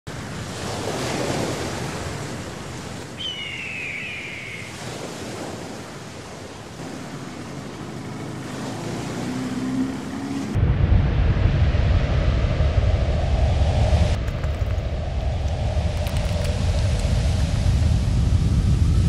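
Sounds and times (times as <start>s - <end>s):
waves washing in: 0.1s - 19.0s
high falling call: 3.2s - 4.8s
low hum: 9.0s - 19.0s.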